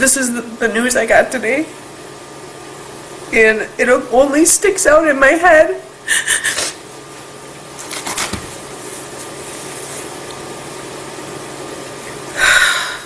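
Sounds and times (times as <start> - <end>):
woman crying and sniffling: 6.0 - 6.8.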